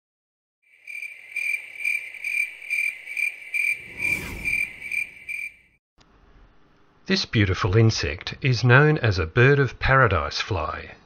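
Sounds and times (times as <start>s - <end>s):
high cricket-like chirping: 0.7s - 5.7s
whoosh: 3.8s - 5.3s.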